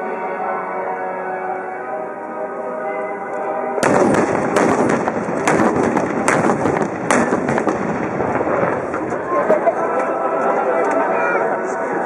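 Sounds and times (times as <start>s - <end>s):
sharp bangs and cracks: 3.8s - 9.2s
howitzer blast: 3.8s - 9.8s.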